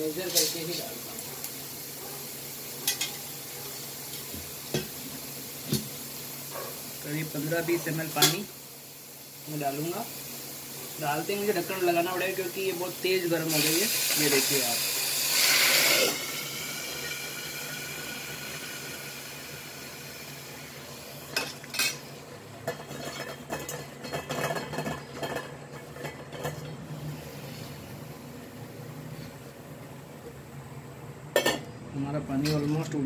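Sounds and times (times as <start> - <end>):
water sizzling in hot pan: 0.0 - 25.0.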